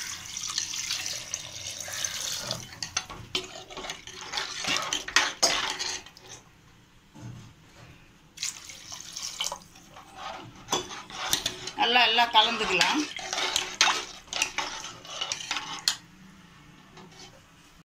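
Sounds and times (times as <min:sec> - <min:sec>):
water pouring and splashing: 0:00.0 - 0:02.8, 0:08.4 - 0:09.9
ladle clinking and scraping pot: 0:01.7 - 0:06.5, 0:09.3 - 0:16.1, 0:16.9 - 0:17.5.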